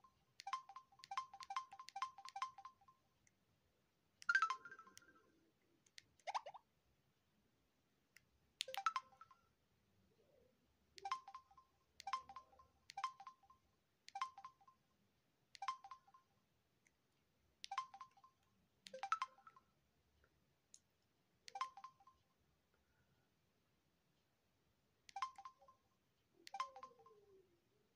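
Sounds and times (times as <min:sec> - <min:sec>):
phone key clicks with beeps: 0:00.4 - 0:02.9, 0:08.6 - 0:09.4, 0:11.0 - 0:13.5, 0:14.1 - 0:14.8, 0:15.6 - 0:16.2, 0:17.6 - 0:19.6, 0:21.5 - 0:22.2, 0:25.1 - 0:25.8, 0:26.5 - 0:27.3.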